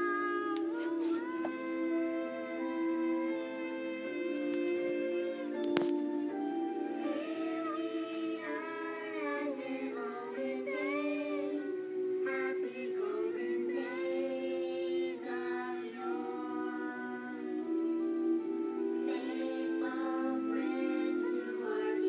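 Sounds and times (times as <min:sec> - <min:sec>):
cartoon voices singing: 0:00.0 - 0:05.6, 0:06.8 - 0:17.8, 0:19.0 - 0:22.0
held chords: 0:00.0 - 0:22.0.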